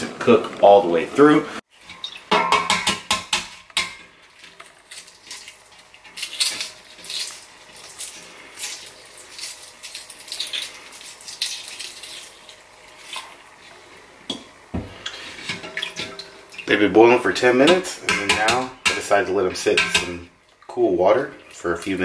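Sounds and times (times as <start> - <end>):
water sloshing in a pot: 1.7 - 2.8, 3.6 - 22.0
eggshell cracking and peeling: 4.7 - 12.6.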